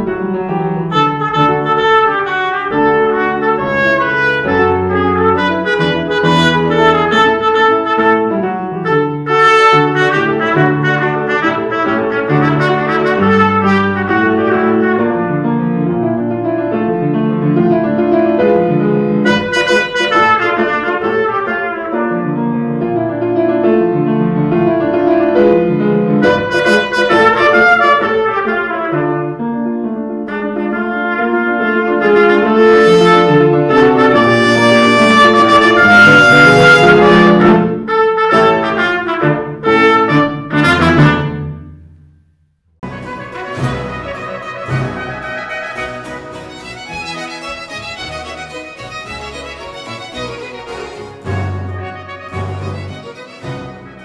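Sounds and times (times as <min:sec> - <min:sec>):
piano accompaniment: 0:00.0 - 0:54.0
trumpet playing quick runs: 0:00.9 - 0:15.5, 0:19.2 - 0:22.3, 0:26.2 - 0:29.2, 0:30.3 - 0:41.6, 0:42.8 - 0:54.0.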